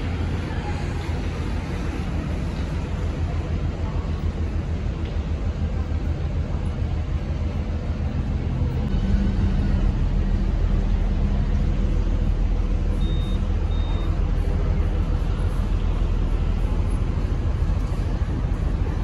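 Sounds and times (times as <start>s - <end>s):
vehicle running with low hum: 0.0s - 19.0s
short high beeps: 12.9s - 14.2s.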